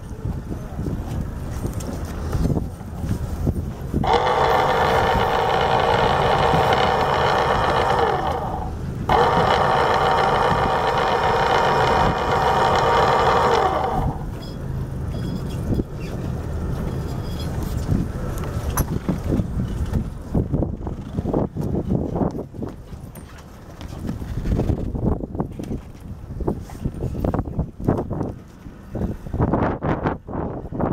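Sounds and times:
windlass motor whining: 0:00.0 - 0:22.8.

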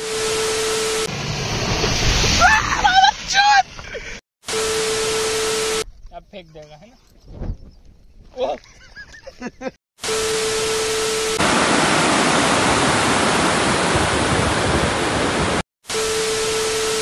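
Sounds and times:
rushing water: 0:11.4 - 0:15.6.

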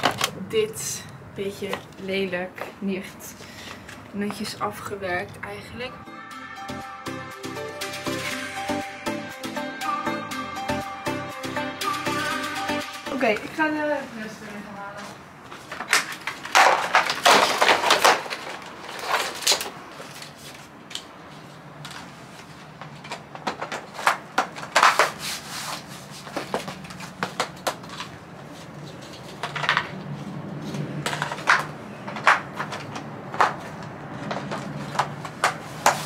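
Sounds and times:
plastic tiles clattering and snapping: 0:15.7 - 0:20.3.

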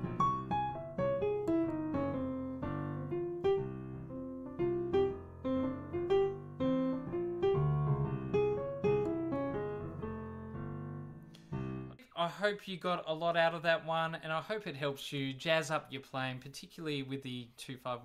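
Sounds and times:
jazz piano chords and melody: 0:00.0 - 0:12.0.

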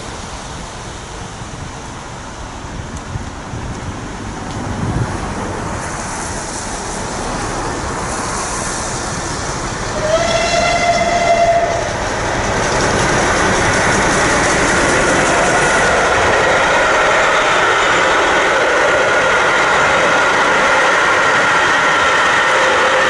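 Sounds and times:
train running noise: 0:00.0 - 0:23.0
steam whistle: 0:09.9 - 0:12.0.

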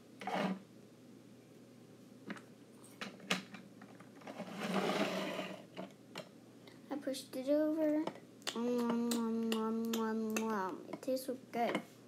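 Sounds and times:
plastic piece scraping on table: 0:00.2 - 0:00.6, 0:04.2 - 0:05.8.

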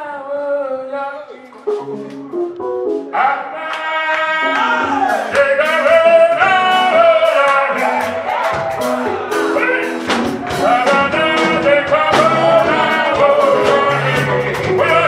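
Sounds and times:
man singing into a microphone: 0:00.0 - 0:02.1, 0:03.1 - 0:08.3, 0:09.5 - 0:15.0
keyboard notes: 0:00.6 - 0:15.0
percussion hits: 0:05.2 - 0:15.0.

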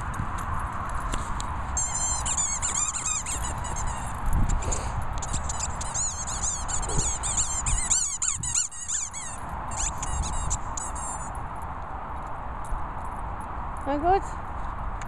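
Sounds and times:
squeaky dog toy squeaking: 0:01.8 - 0:11.4.

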